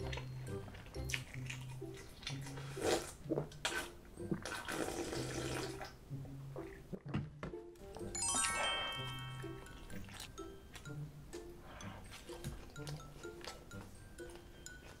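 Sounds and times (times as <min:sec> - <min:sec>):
slurping and swallowing broth: 0:01.4 - 0:05.9.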